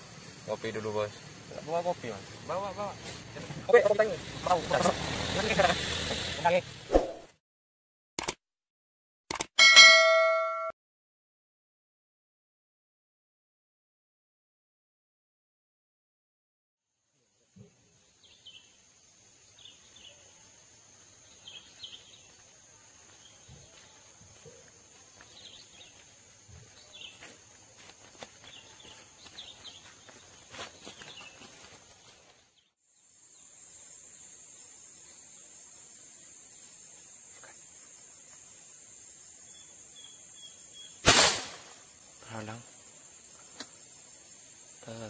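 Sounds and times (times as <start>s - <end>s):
high-pitched insect drone: 3.7s - 6.6s
light footsteps or rustles: 23.0s - 32.5s
bird chirps: 39.4s - 41.0s.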